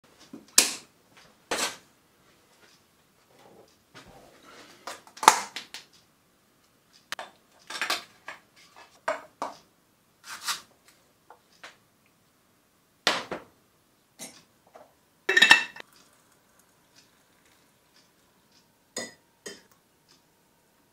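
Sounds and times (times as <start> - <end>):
mugs and spoon clinking on worktop: 14.2 - 16.0.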